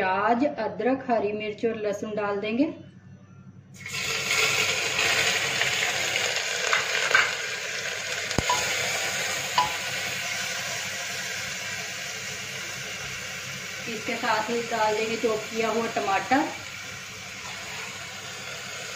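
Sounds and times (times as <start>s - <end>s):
food sizzling in hot oil: 3.8s - 18.9s.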